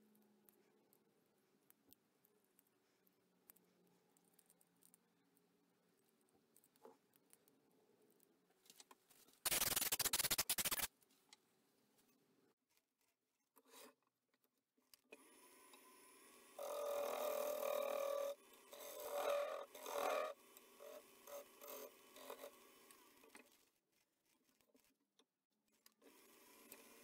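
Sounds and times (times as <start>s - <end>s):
gouge cutting spinning wood: 16.6s - 22.9s.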